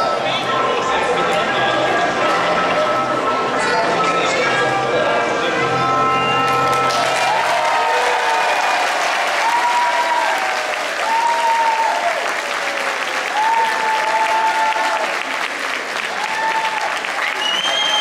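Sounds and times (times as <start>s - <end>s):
audience applauding: 6.5s - 18.0s.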